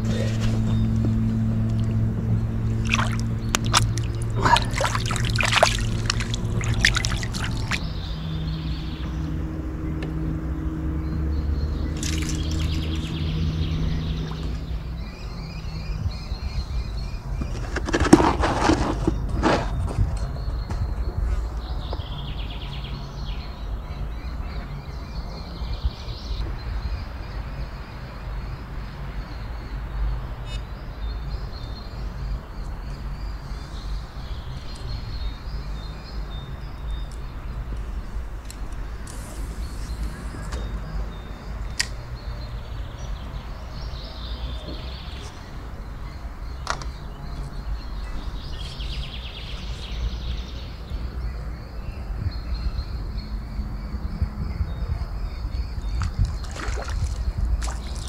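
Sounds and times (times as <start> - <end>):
steady low rumble: 0.0 - 17.5.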